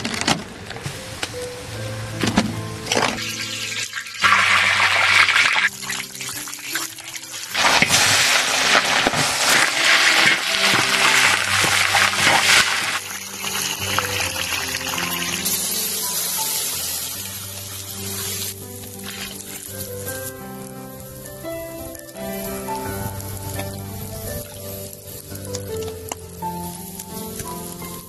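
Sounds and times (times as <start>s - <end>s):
background music with low notes: 0.0s - 28.0s
water splashing and pouring: 2.3s - 20.4s.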